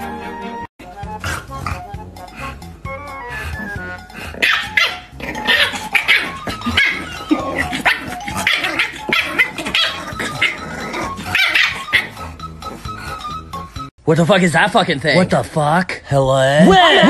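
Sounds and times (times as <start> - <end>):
puppy yapping: 4.4 - 12.2.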